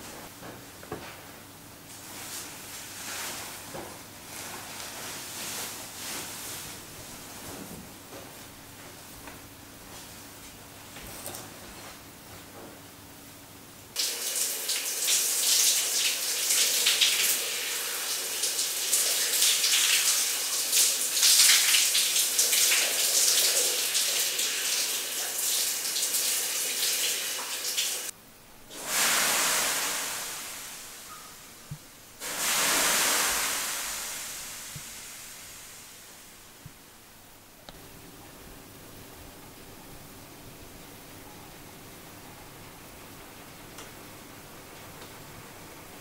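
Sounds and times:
running water hissing: 14.0 - 36.8
water sizzling on hot stones: 32.2 - 36.1.

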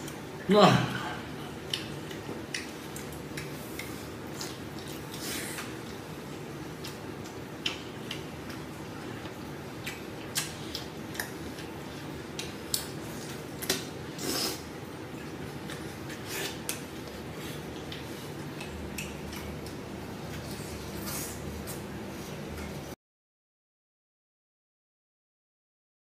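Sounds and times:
man chewing and lip-smacking: 1.4 - 22.8
sharp clicks tearing meat: 12.4 - 13.9.

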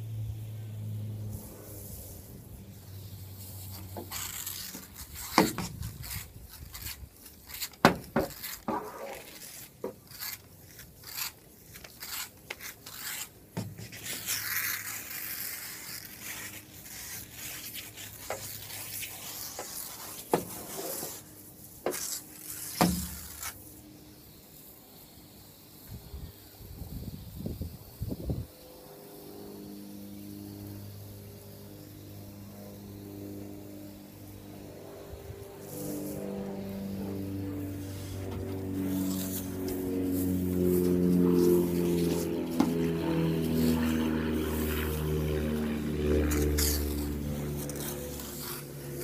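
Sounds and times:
hissing spray jets: 0.1 - 32.1, 35.6 - 49.0
brush bristles rubbing wet glass: 1.4 - 23.8, 37.0 - 49.0.

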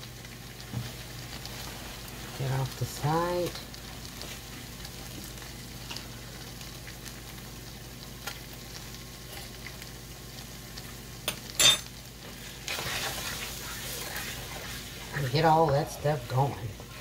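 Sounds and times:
food sizzling in a skillet: 0.0 - 17.0
wooden spatula scraping a pan: 12.3 - 16.0.

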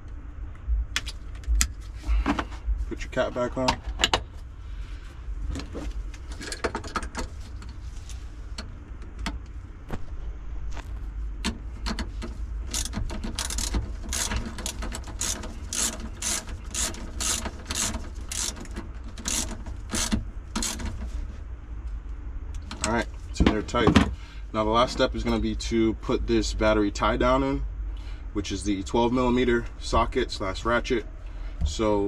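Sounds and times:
socket ratchet clicking: 11.4 - 20.9.

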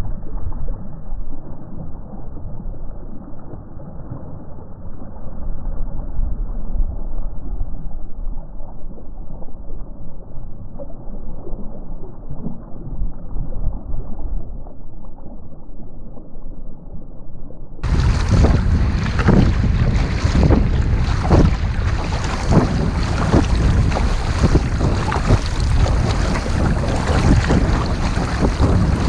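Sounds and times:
wind and water noise: 0.0 - 16.3, 17.8 - 29.0
wind gusting on microphone: 17.8 - 29.0.

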